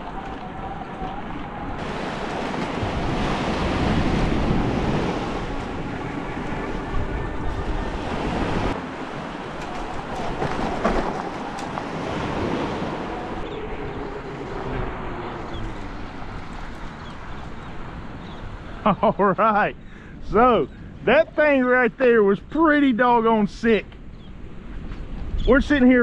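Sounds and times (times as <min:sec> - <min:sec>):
surf breaking on shore: 0:00.0 - 0:18.0
wind on microphone: 0:00.0 - 0:18.8.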